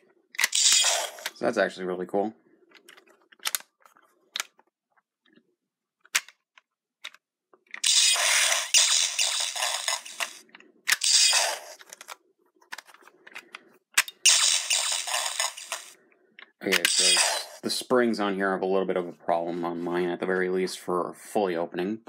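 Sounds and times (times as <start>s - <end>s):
plastic clicks: 2.7s - 5.4s, 6.0s - 7.8s.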